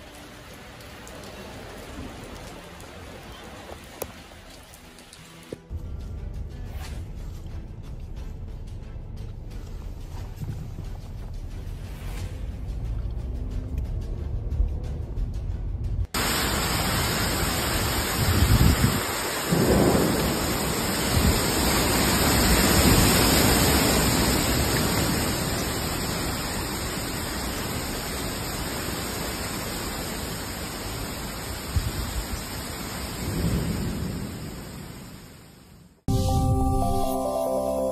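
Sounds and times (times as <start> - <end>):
torrential rain: 0.0 - 5.8, 7.6 - 36.1
strong wind: 16.6 - 27.1
wind gusts hitting microphone: 17.7 - 25.3.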